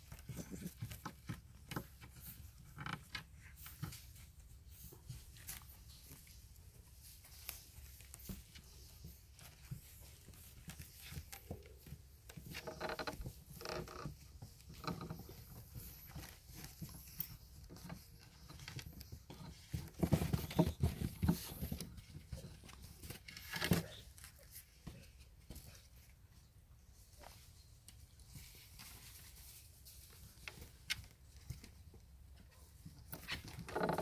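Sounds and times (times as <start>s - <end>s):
thumps and rustling: 0.0s - 26.1s
puppies pattering and scuffling: 0.0s - 34.0s.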